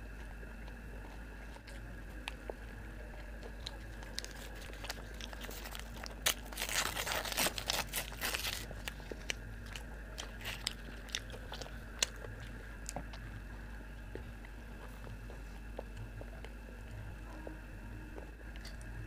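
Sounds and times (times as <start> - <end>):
quiet chewing: 0.0 - 19.0
tissue paper crinkling and tearing: 4.1 - 9.3.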